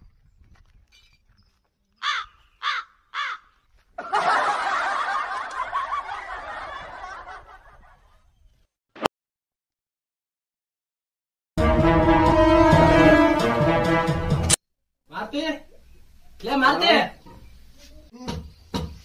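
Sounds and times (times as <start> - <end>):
crow cawing: 2.0 - 3.6
crowd laughing: 4.0 - 8.1.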